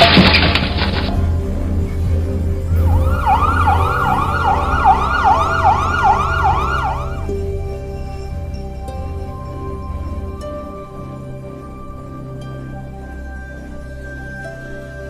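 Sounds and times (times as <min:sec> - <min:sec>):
low steady drone: 0:00.0 - 0:15.0
emergency siren yelping: 0:02.8 - 0:07.4.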